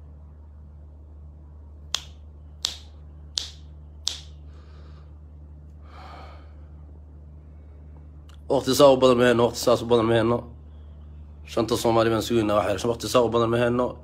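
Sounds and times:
low steady hum: 0.0 - 14.0
finger snaps: 1.9 - 4.4.

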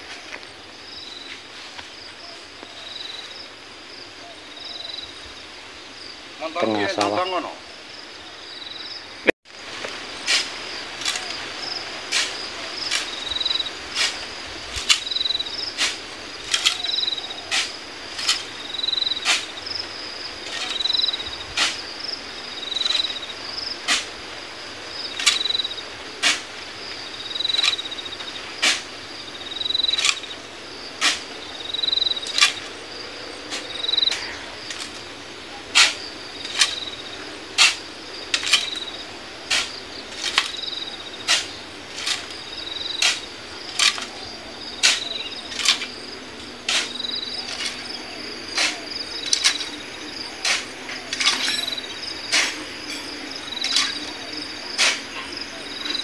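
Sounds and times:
insect chirps: 0.0 - 56.0
shovel scraping sand: 9.8 - 24.4, 25.0 - 56.0
high-pitched insect drone: 29.1 - 35.0.

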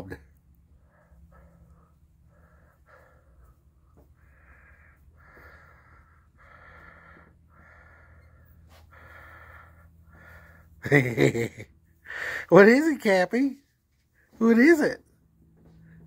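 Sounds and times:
person breathing slowly: 0.4 - 10.8, 12.0 - 12.5.

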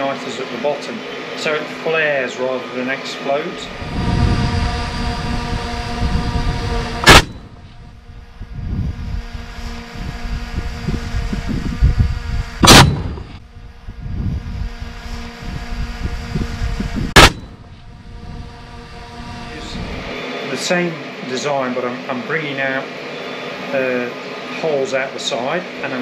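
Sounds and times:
steady hum: 0.0 - 25.0
loud sharp bangs: 7.0 - 7.8, 12.6 - 13.4, 17.1 - 17.8.

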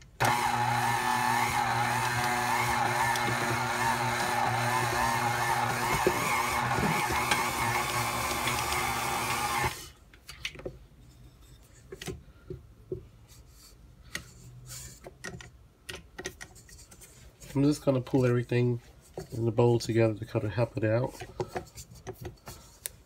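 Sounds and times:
hands working dough: 0.0 - 10.9
stand mixer motor running: 0.2 - 9.8.

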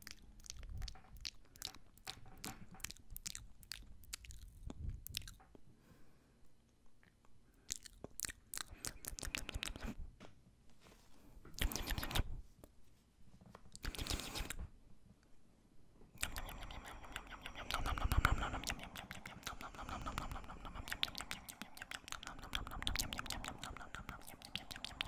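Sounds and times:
wet mouth smacking and clicking: 0.0 - 5.5, 7.0 - 10.0, 11.5 - 12.3, 13.7 - 14.7, 16.2 - 25.0.

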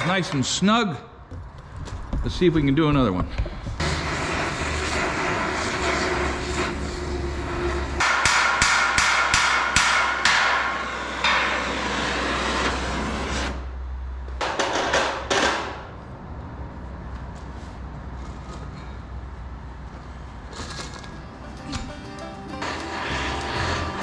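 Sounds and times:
torch hissing: 3.8 - 8.3, 22.4 - 24.0.

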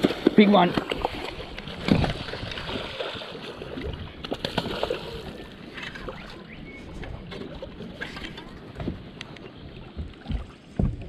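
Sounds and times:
water sloshing around boat: 0.0 - 11.0
wind on microphone: 0.9 - 3.0.

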